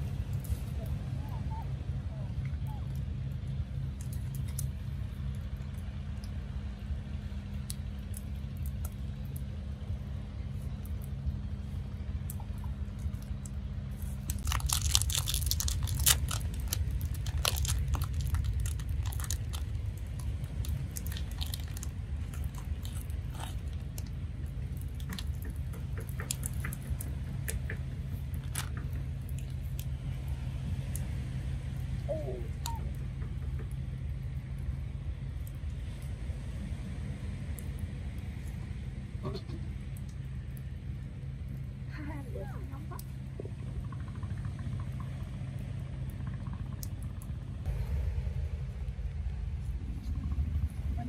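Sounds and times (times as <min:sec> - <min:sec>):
wrapper crinkling and tearing: 0:14.2 - 0:23.6.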